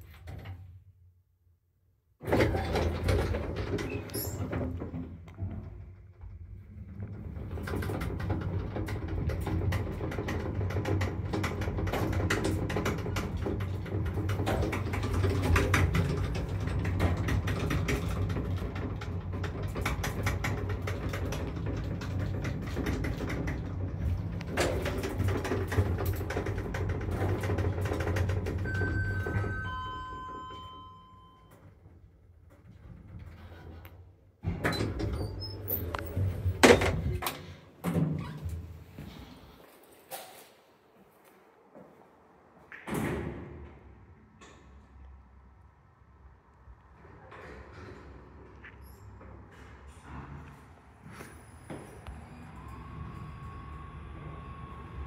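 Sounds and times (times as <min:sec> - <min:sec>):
lift doors sliding open: 0:02.2 - 0:40.7, 0:46.9 - 0:55.0
lift motor hum: 0:46.7 - 0:55.0.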